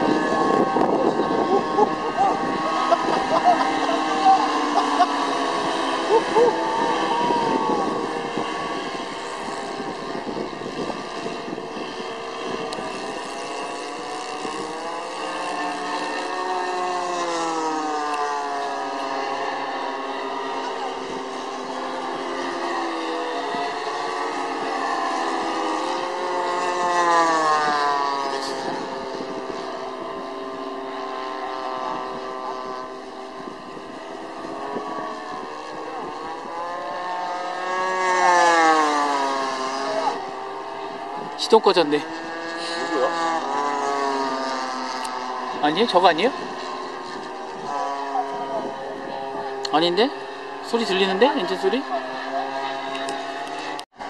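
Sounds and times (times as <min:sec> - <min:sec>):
wind noise on microphone: 0:00.0 - 0:16.8, 0:22.5 - 0:41.4, 0:46.3 - 0:49.6
model airplanes droning: 0:00.0 - 0:54.0.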